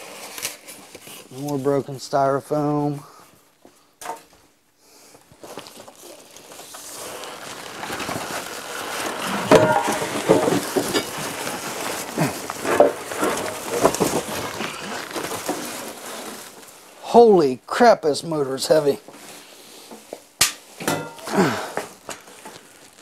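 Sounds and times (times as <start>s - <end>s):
plastic wrap crinkling: 0.0s - 2.1s, 5.2s - 17.2s, 18.3s - 23.0s
styrofoam squeaking on cardboard: 5.4s - 16.8s, 21.4s - 23.0s.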